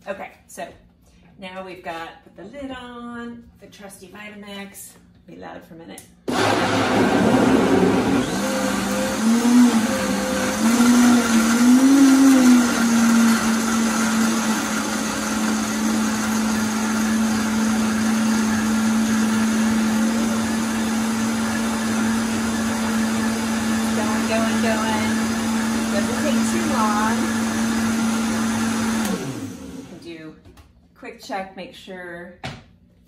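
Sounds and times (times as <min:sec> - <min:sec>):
blender running: 0:06.3 - 0:30.1.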